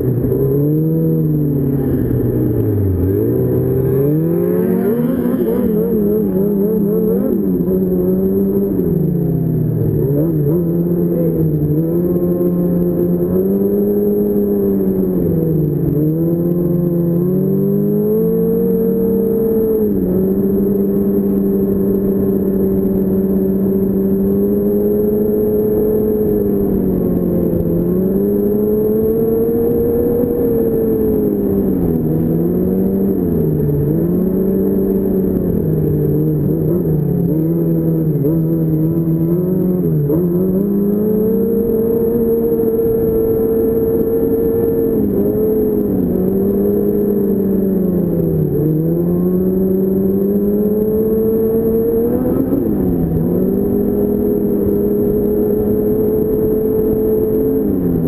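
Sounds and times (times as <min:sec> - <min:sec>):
snowmobile engine revving: 0:00.3 - 0:08.8.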